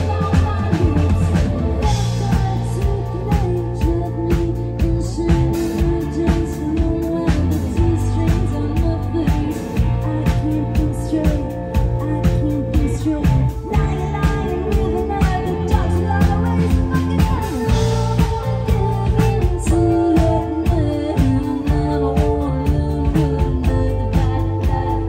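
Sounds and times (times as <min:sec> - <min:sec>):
drum kit beat: 0:00.0 - 0:25.0
electric bass: 0:00.0 - 0:25.0
electric guitar: 0:00.0 - 0:25.0.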